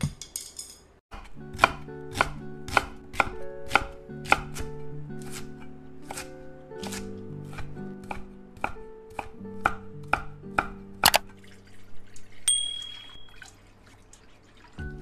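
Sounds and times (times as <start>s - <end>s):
knife chopping on wooden board: 1.2s - 11.2s
background music: 1.2s - 12.0s, 14.8s - 15.0s
high ringing tone: 12.5s - 13.4s.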